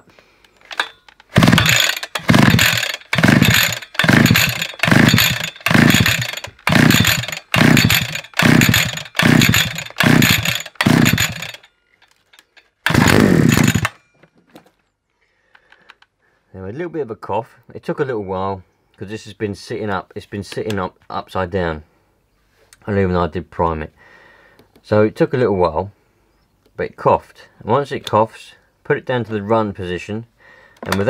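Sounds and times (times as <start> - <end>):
pull-cord engine cranking: 0.5 - 14.0
engine coughing: 1.4 - 11.6, 12.9 - 13.9.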